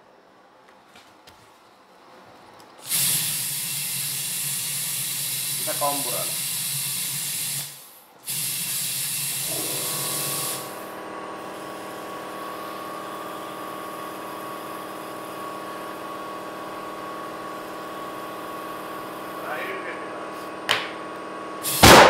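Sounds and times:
air compressor motor hum: 2.8 - 22.0
compressed air hissing from tire chuck: 2.8 - 22.0.

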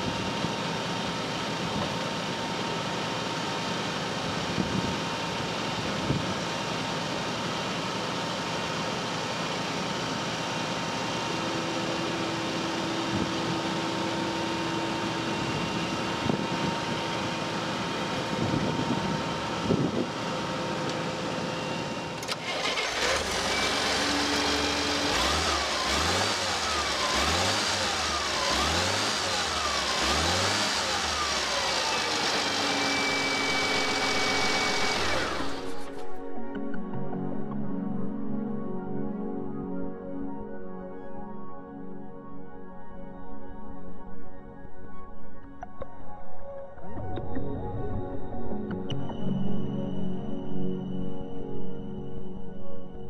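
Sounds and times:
forklift engine running: 0.0 - 36.2
engine revving: 11.1 - 36.0.

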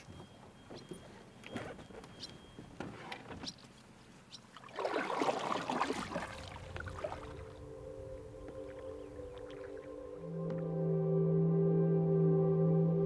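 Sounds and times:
paddle swashing through water: 4.5 - 7.7
soft ambient music: 6.2 - 13.0.

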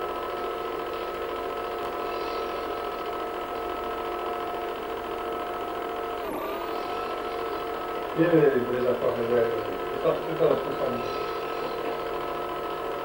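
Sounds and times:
film projector whirring: 0.0 - 13.0.

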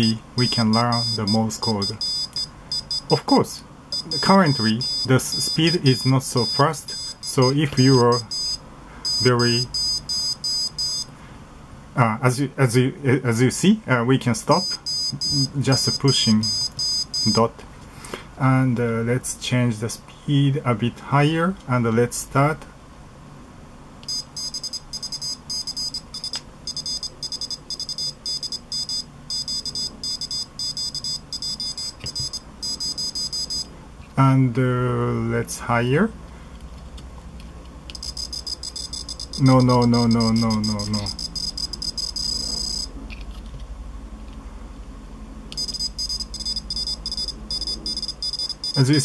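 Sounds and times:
high-pitched morse code beeps: 0.0 - 3.2, 3.9 - 11.1, 14.6 - 17.4, 24.1 - 33.7, 37.9 - 42.9, 45.6 - 49.0.

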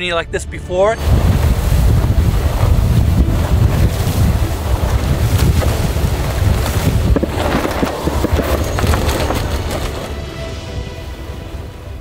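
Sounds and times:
wind buffeting microphone: 1.0 - 10.9
rushing wind: 1.0 - 12.0
sea rushing: 1.0 - 12.0.

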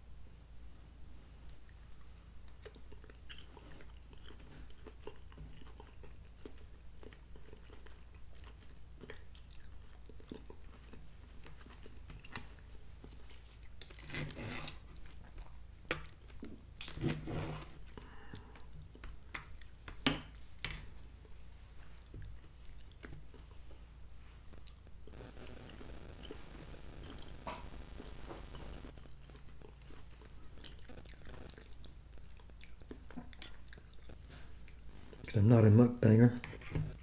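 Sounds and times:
man chewing and eating: 1.0 - 35.7
loud noise bursts: 25.1 - 29.0.

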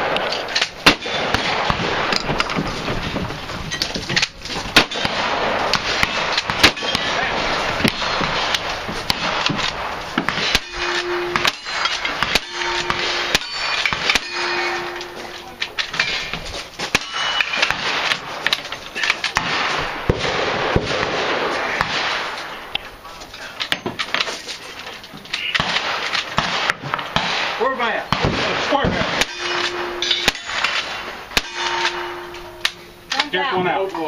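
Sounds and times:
gunshots: 0.0 - 22.8, 25.4 - 32.9
steel targets ringing: 4.8 - 9.5, 10.3 - 18.0, 29.0 - 33.2.

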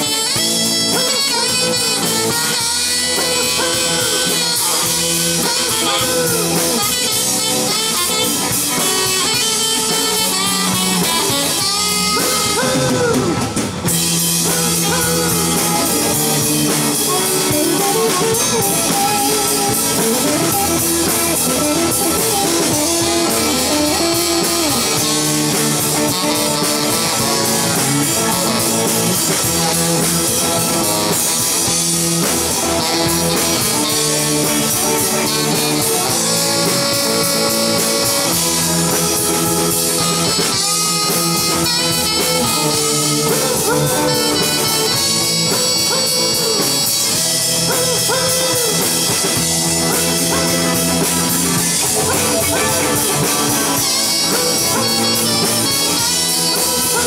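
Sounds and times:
rock blues band playing: 0.0 - 57.0
saxophone: 0.0 - 57.0.

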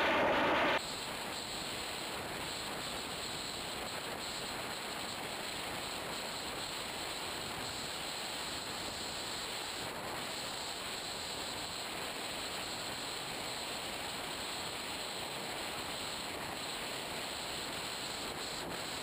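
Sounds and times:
air rushing over camera: 0.0 - 0.8.

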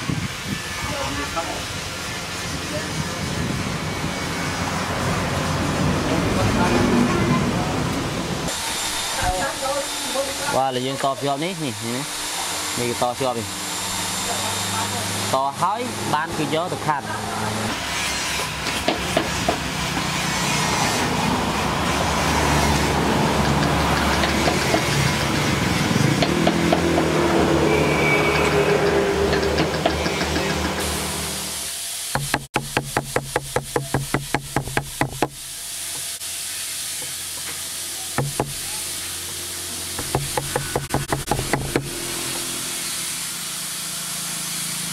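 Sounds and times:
power tool grinding wood: 8.5 - 44.9
hammer tapping a tool: 23.4 - 25.1, 26.2 - 27.1, 28.8 - 30.9, 32.1 - 36.1, 38.2 - 38.7, 40.0 - 41.9
steady hiss: 30.8 - 43.6.

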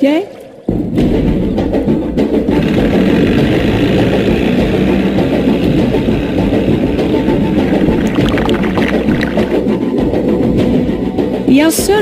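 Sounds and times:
outboard motor running: 2.4 - 9.7.

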